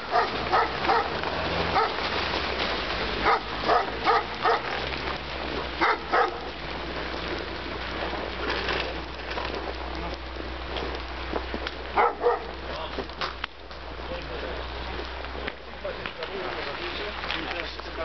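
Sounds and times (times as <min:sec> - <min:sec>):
dog barking: 0:00.0 - 0:02.0, 0:03.2 - 0:04.8, 0:05.8 - 0:06.5, 0:12.0 - 0:12.5.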